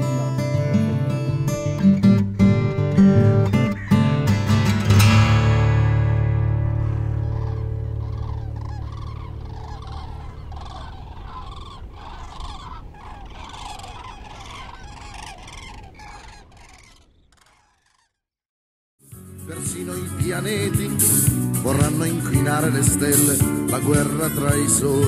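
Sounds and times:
guitar notes: 0.0 - 10.1
cranes trumpeting: 6.1 - 18.2.

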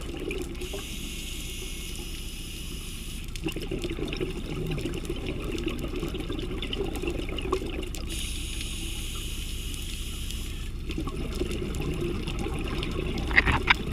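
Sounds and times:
hiss: 0.6 - 3.3, 8.1 - 10.7.

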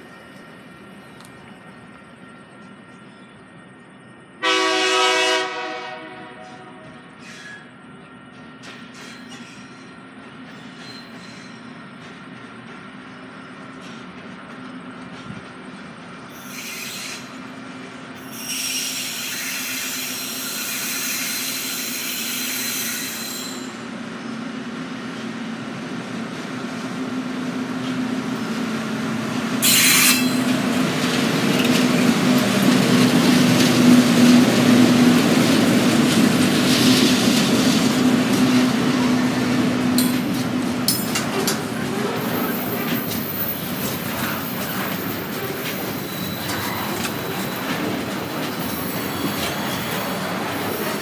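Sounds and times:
diesel locomotive engine drone: 0.0 - 51.0
high wheel squeal: 7.2 - 7.8, 8.9 - 11.8, 16.3 - 17.4, 18.2 - 23.9, 29.6 - 30.6, 41.3 - 51.0.

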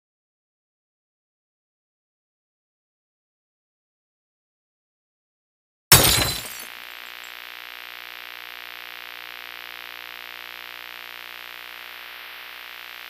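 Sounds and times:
electronic drone of held tones: 6.5 - 13.0.

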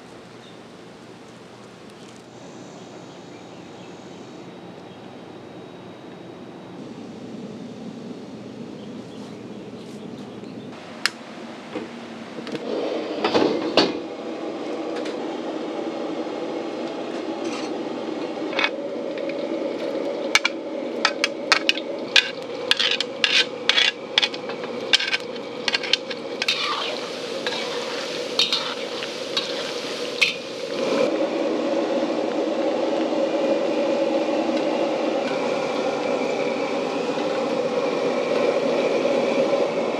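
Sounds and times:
oil sizzling: 18.4 - 39.9
metal spatula scraping a wok: 21.5 - 30.8.

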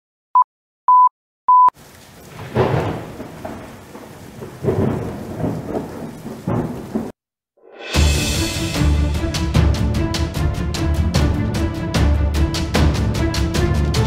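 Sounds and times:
short electronic beeps: 0.4 - 1.7
steady rain: 1.8 - 7.2
rolling thunder: 2.1 - 7.2.

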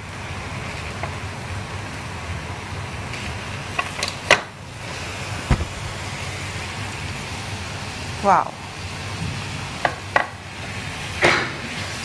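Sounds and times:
low knock: 5.5 - 6.0.

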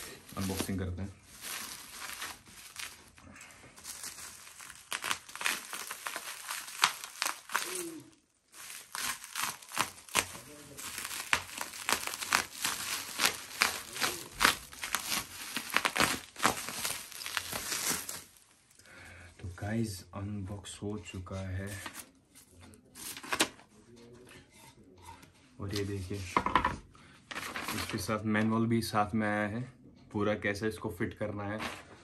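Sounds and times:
bubble wrap crinkling: 0.0 - 18.8.

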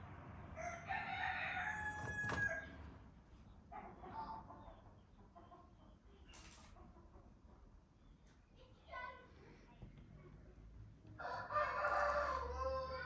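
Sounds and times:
rooster crowing: 0.6 - 2.8, 11.2 - 13.0.

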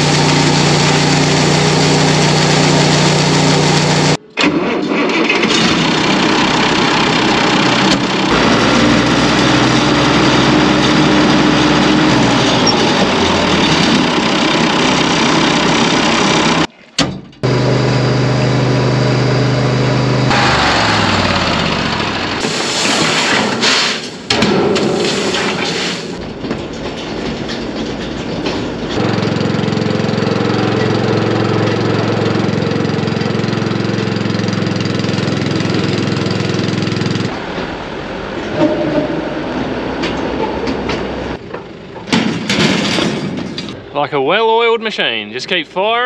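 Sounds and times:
small engine running: 0.0 - 4.2, 5.3 - 16.7, 17.4 - 22.4, 29.0 - 37.3
tractor engine: 0.0 - 46.0.

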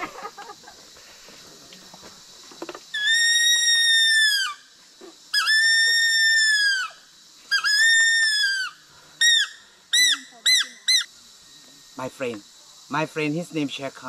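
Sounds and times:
high whistle blown on a leaf: 2.9 - 11.1.

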